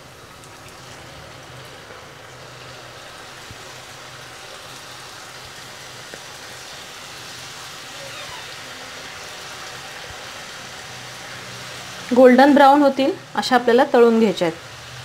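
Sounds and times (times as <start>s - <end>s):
dough deep-frying in hot oil: 0.0s - 15.0s.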